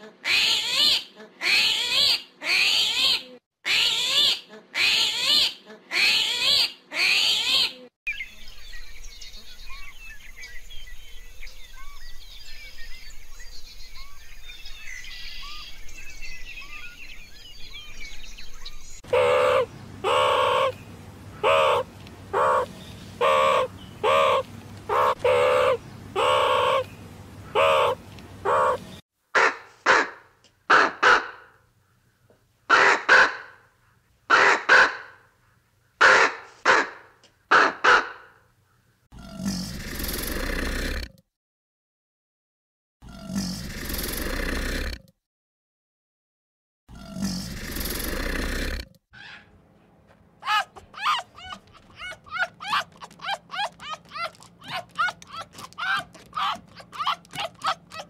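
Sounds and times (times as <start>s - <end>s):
faint bird chirping: 8.1s - 29.0s
loud bird calls: 14.9s - 31.4s, 50.4s - 58.0s.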